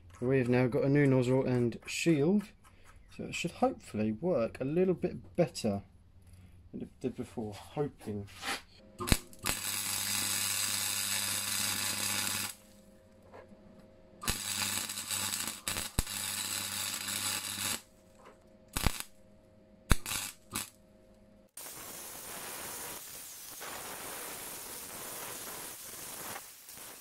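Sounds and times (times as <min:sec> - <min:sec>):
low electrical hum: 0:00.0 - 0:21.5
welder arc crackling and hissing: 0:09.0 - 0:13.4, 0:14.2 - 0:19.2, 0:19.9 - 0:20.8, 0:21.5 - 0:27.0
angle grinder grinding steel: 0:14.2 - 0:17.8.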